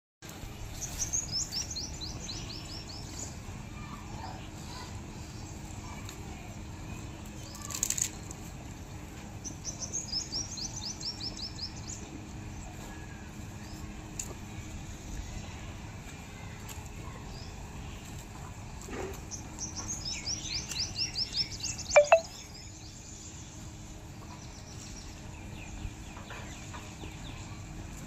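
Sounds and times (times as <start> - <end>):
low outdoor background noise: 0.2 - 28.0
songbird chirping: 19.6 - 22.5.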